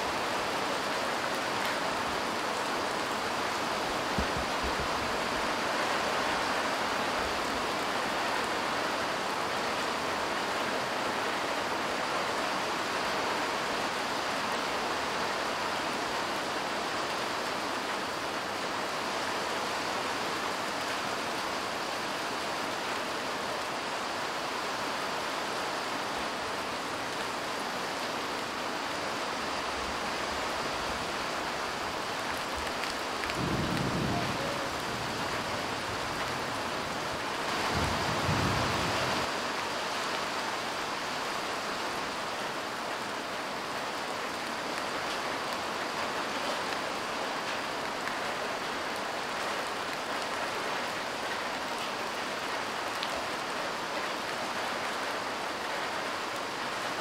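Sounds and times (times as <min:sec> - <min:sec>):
light rain falling: 0:00.0 - 0:57.0
low rumble of thunder: 0:33.3 - 0:36.7, 0:37.6 - 0:39.2.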